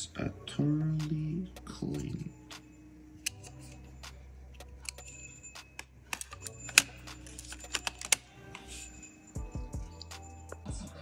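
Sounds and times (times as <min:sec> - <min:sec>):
plastic and metal parts clicking: 0:05.8 - 0:08.7.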